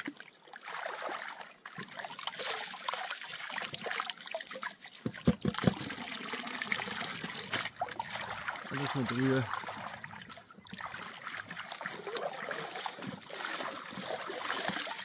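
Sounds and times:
water sloshing in gold pan: 0.0s - 15.0s
dull knocks: 5.0s - 5.9s.

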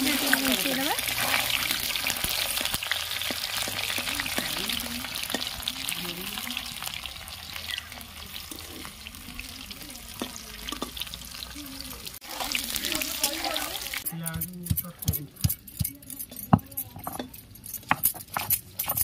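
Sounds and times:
metal spatula scraping a pan: 0.0s - 9.2s, 12.3s - 19.0s
food deep-frying in oil: 0.0s - 14.2s.

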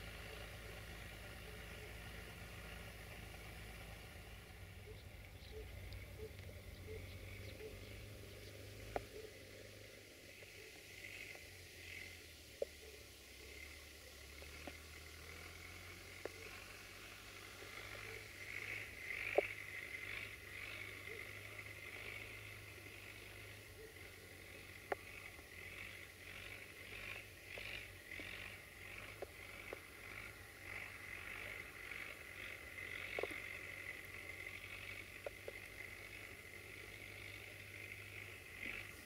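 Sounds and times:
distant tractor engine: 0.0s - 39.0s
birds chattering: 0.2s - 15.0s.

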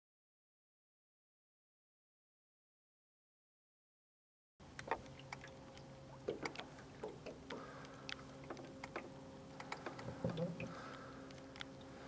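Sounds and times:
steady low hum: 4.6s - 12.0s
water lapping against boat hull: 4.6s - 12.0s.

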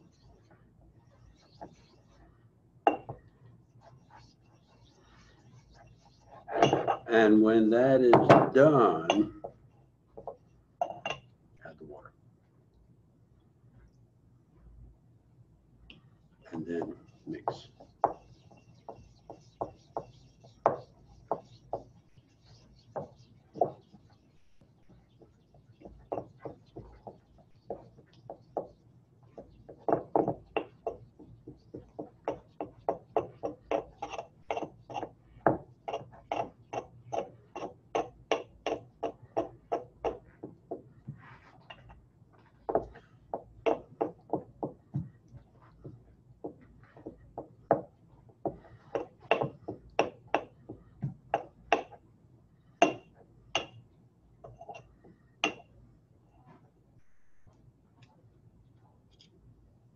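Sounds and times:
pestle grinding in mortar: 29.9s - 40.3s.

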